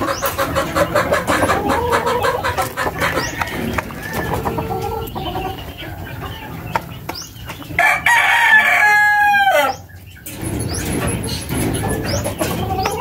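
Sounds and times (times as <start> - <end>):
rooster crowing: 7.8 - 9.8.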